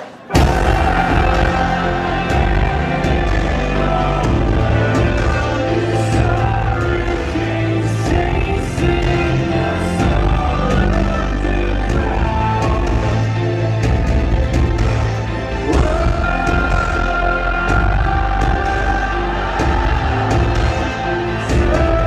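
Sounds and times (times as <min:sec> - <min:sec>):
drum hits: 0:00.3 - 0:11.2
sustained bass notes: 0:00.3 - 0:22.0
live rock band playing: 0:00.4 - 0:22.0.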